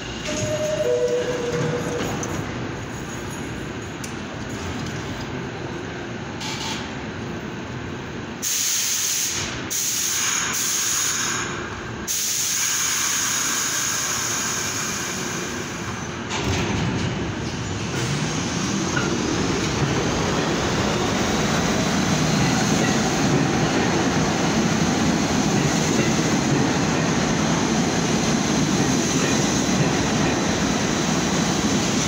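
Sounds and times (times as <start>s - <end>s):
subway train rumbling: 0.0s - 32.0s
compressed air hissing: 12.1s - 15.8s.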